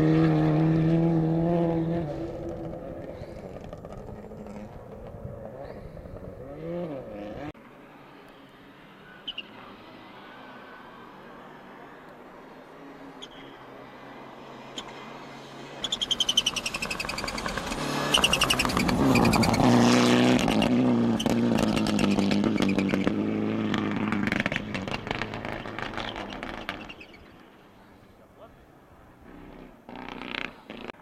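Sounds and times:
rally car engine revving: 0.0 - 7.5, 16.0 - 27.0.

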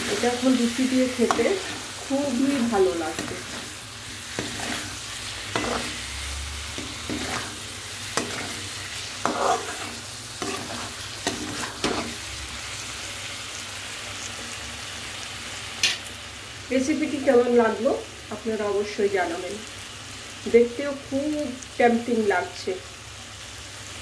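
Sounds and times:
spatula scraping a pan: 0.0 - 12.2
curry sizzling in a frying pan: 0.0 - 24.0.

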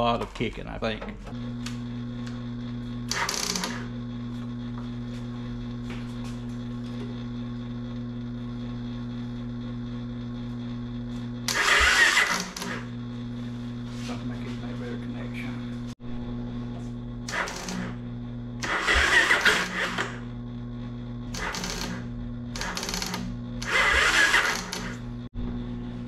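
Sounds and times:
steady low hum: 0.0 - 26.0
electric starter cranking: 3.0 - 4.0, 11.4 - 12.9, 17.2 - 18.0, 18.6 - 20.2, 21.3 - 25.2.

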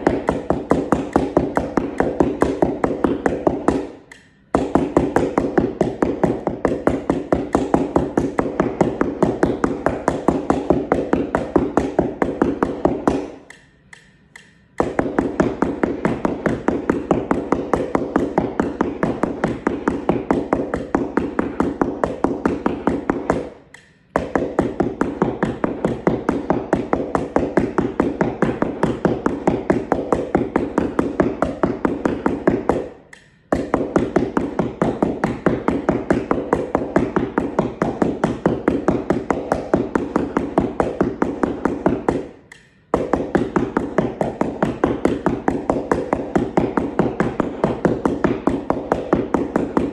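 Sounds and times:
yarn mallets tapping on cardboard: 0.0 - 49.9.

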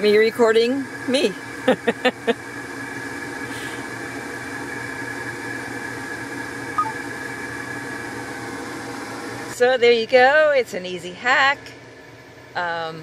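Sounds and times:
mechanical hum: 0.0 - 13.0
short chirp: 6.8 - 7.0.

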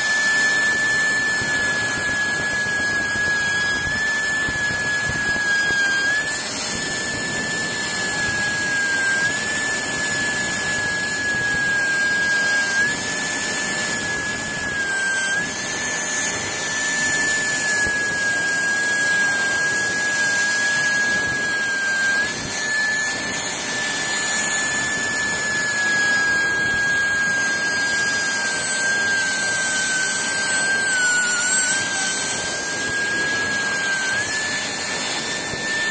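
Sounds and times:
dental drill whine: 0.0 - 35.9.

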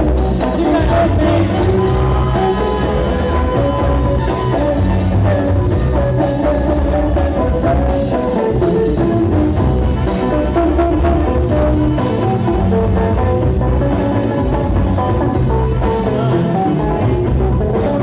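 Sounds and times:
dance music over speakers: 0.2 - 5.7.

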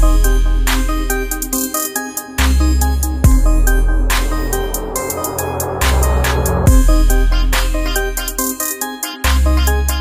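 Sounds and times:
heavy bass line: 2.5 - 7.8
synth notes: 2.6 - 7.8.

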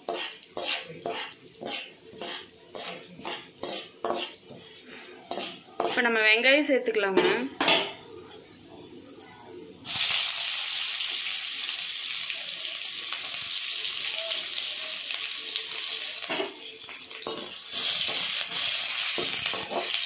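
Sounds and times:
knocks of onions being stirred: 0.0 - 6.5, 10.4 - 20.0
onions sizzling in hot oil: 0.0 - 6.5, 9.7 - 20.0.

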